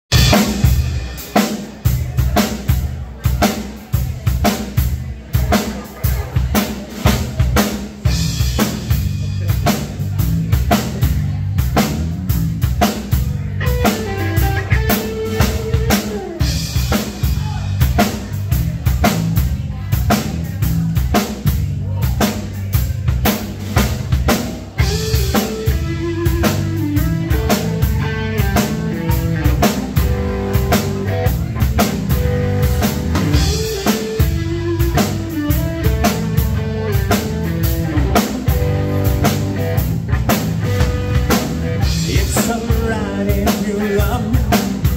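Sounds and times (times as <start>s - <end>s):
drum kit beat: 0.0s - 44.9s
electric bass: 0.0s - 44.9s
electric guitar: 12.6s - 18.6s, 23.6s - 44.9s.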